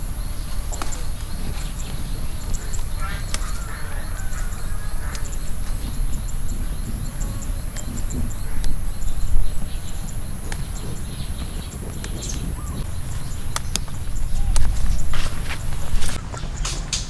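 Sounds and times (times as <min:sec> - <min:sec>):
low rumble: 0:00.0 - 0:16.3
high-pitched whine: 0:00.0 - 0:16.4
faint bird chirps: 0:00.0 - 0:16.6
chili pods snapping: 0:00.3 - 0:17.0.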